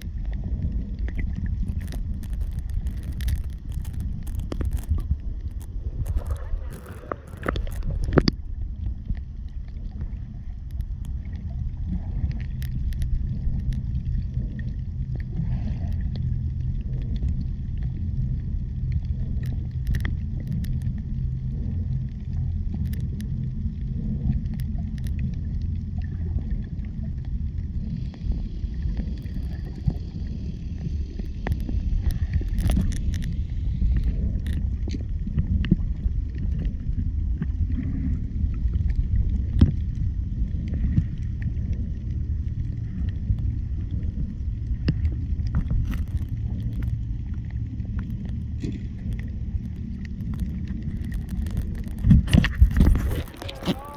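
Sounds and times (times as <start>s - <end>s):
faint clicks: 0.0s - 53.9s
underwater rumble of moving water: 0.0s - 53.9s.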